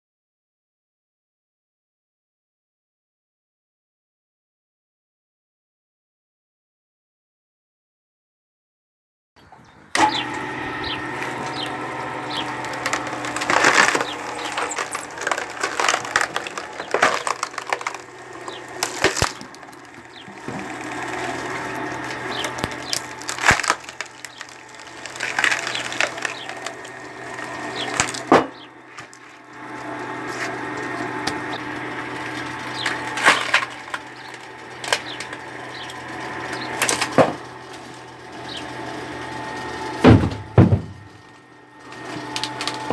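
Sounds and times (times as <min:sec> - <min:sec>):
screw log splitter boring into wood: 0:10.0 - 0:42.9
wood crackling and splintering: 0:10.0 - 0:42.9
sharp wood cracks: 0:11.1 - 0:29.4, 0:30.7 - 0:37.9.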